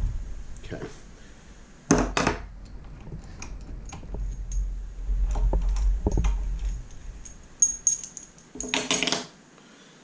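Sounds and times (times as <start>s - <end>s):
low rumble: 0.0s - 8.0s
metal parts and tools clicking: 5.3s - 9.2s.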